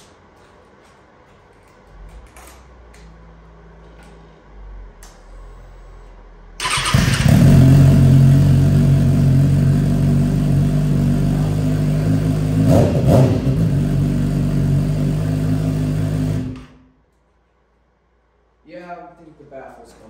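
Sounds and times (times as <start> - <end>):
motorcycle engine idling and revving: 6.6 - 16.8.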